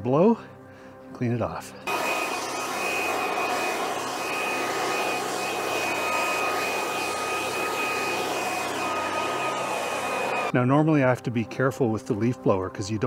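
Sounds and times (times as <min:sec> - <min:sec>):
electric leaf blower running: 0:01.9 - 0:10.5.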